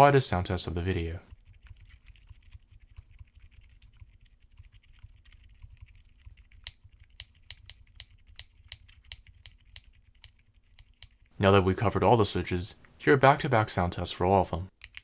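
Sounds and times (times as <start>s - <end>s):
soft keyboard typing: 1.3s - 11.3s, 14.7s - 15.0s.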